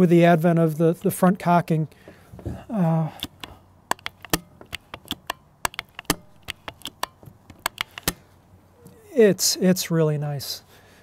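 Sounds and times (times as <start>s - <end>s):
air rifle cocking lever clicks: 3.1s - 8.2s.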